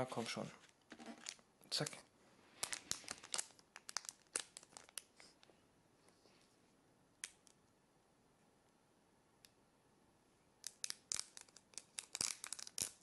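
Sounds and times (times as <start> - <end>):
foil wrapper crinkling: 2.6 - 5.1, 11.1 - 13.0.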